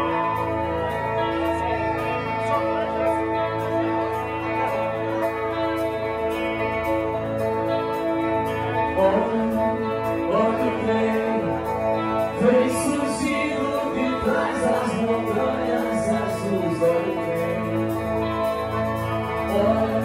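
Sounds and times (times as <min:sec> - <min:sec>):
electric guitar: 0:00.0 - 0:20.0
live rock band: 0:00.0 - 0:20.0
man singing: 0:08.7 - 0:20.0.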